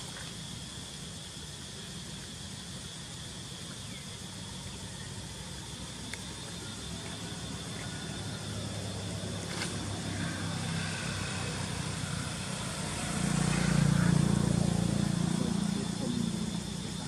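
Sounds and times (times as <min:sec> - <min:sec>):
vehicle engine humming: 0:05.2 - 0:17.0.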